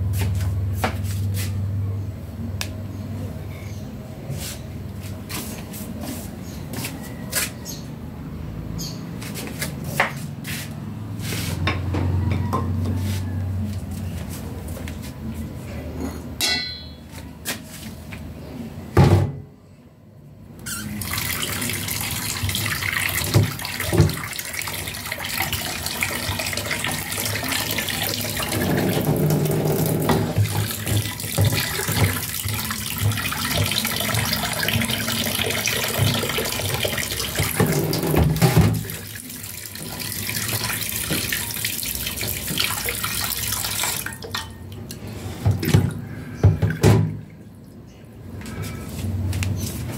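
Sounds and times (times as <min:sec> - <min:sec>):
water running from tap: 0:20.7 - 0:44.5.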